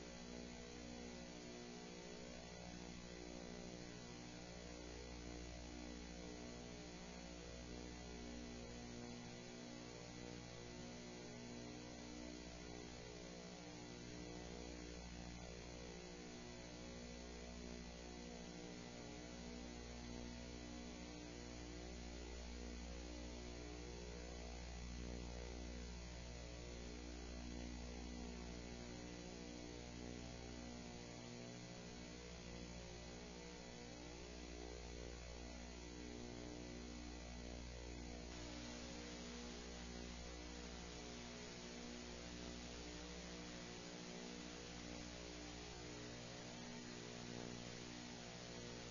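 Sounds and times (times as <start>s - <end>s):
faint electrical mains hum: 0.0s - 48.9s
steady hiss: 38.3s - 42.3s.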